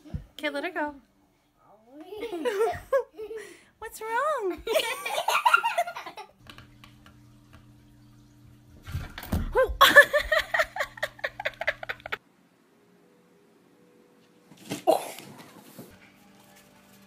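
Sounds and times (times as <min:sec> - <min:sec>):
faint steady hum: 0:00.0 - 0:15.0
people laughing: 0:02.2 - 0:03.5, 0:09.8 - 0:12.2.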